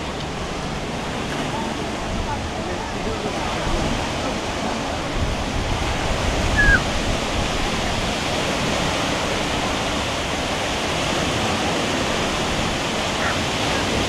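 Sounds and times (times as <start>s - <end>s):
water rushing: 0.0s - 14.0s
high falling chirp: 6.6s - 6.8s.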